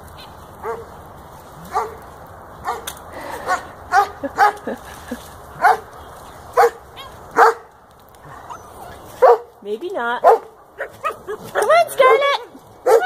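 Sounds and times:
puppy barking and yipping: 0.6s - 0.9s, 6.6s - 9.5s, 10.2s - 12.2s.

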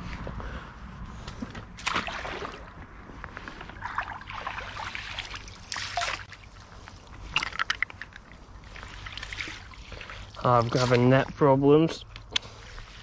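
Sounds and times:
fish thrashing water splashing: 1.8s - 2.8s, 3.8s - 6.5s.

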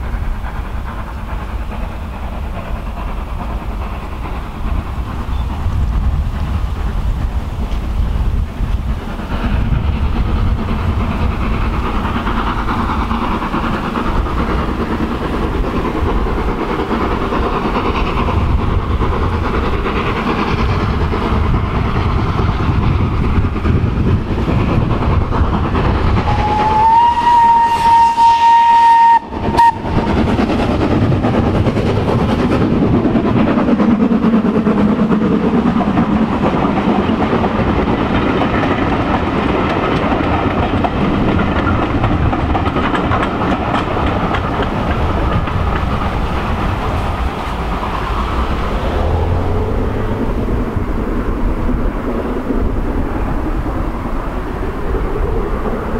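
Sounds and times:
steam locomotive rumbling: 0.0s - 55.9s
steam whistle blast: 26.3s - 30.0s
coaches clattering over rail joints: 29.4s - 53.7s.

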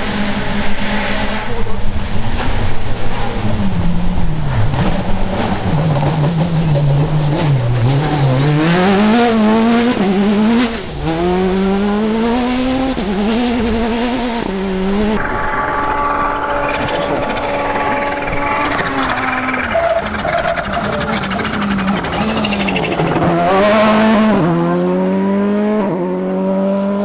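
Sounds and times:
rally car engine revving: 0.0s - 27.0s
steady engine hum: 14.7s - 25.7s.

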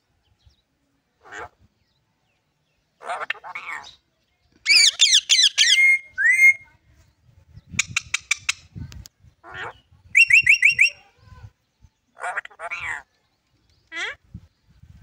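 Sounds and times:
parrot whistling: 4.7s - 6.6s.

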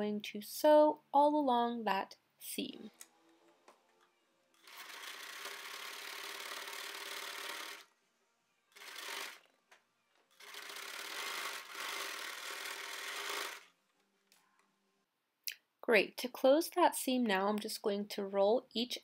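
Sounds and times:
sewing machine stitching: 4.6s - 7.9s, 8.8s - 9.4s, 10.3s - 13.7s.

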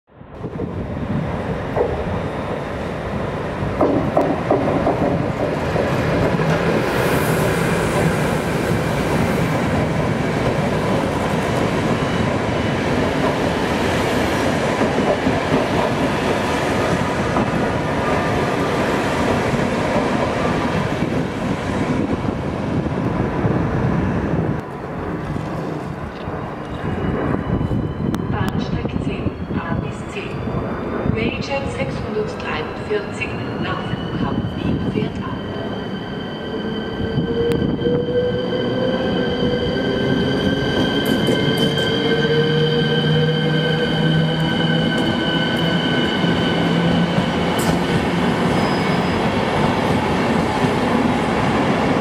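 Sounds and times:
train rumbling past: 0.2s - 52.0s
faint wheel squeal: 48.5s - 49.2s.

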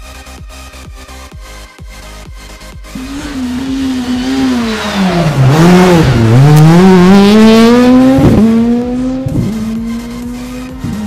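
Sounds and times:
rally car engine revving: 2.8s - 11.0s.

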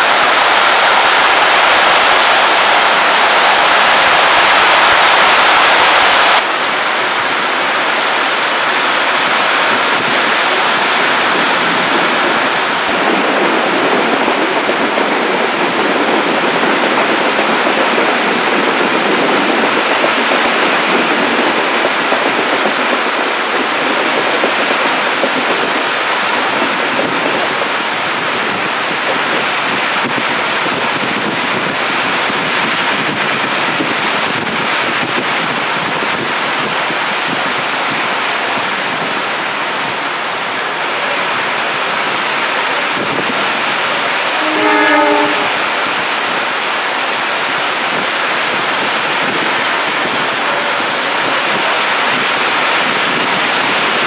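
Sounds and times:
heavy rain pouring: 0.0s - 54.0s
train horn blast: 44.1s - 46.2s, 50.0s - 52.1s.

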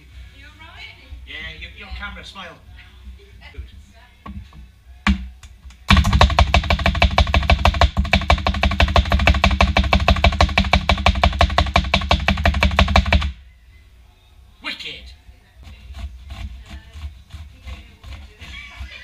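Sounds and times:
food chopper clacking: 5.9s - 13.4s.

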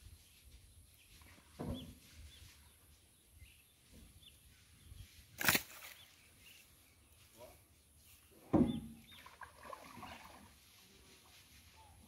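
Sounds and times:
paddle splashing water: 8.7s - 11.3s.

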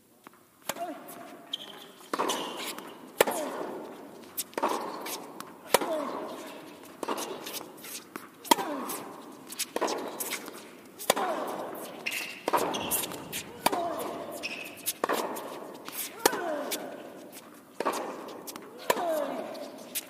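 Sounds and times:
tennis ball bouncing on hard court: 0.6s - 7.7s, 8.4s - 20.0s
tennis ball struck by racquets: 0.6s - 7.7s, 8.4s - 19.6s.

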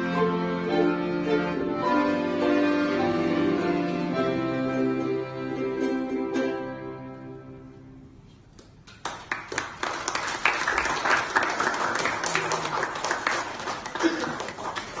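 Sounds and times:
audience applauding: 8.9s - 15.0s.

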